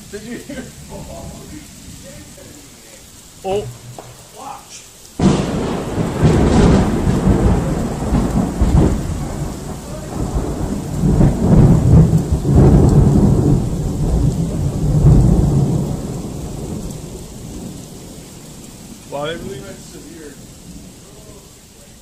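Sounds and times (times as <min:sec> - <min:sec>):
rolling thunder: 0:00.0 - 0:21.6
rain falling: 0:00.0 - 0:22.0
sharp thunderclap: 0:05.2 - 0:19.8.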